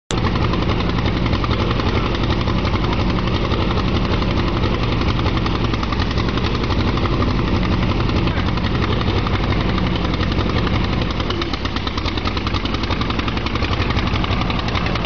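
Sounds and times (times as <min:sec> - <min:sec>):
tractor engine chugging: 0:00.1 - 0:15.0.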